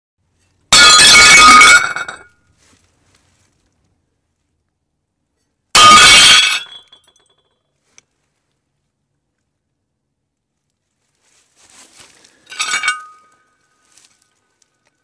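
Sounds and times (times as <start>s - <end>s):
plates smashing: 0.7s - 2.3s, 5.8s - 7.0s, 12.5s - 13.3s
pieces clinking: 12.4s - 13.5s.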